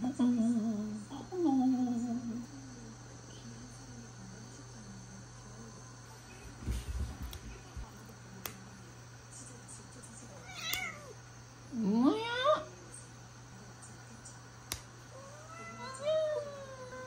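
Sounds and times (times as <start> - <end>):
crickets chirring: 0.0 - 17.0
low thumps and rustles: 6.4 - 8.0.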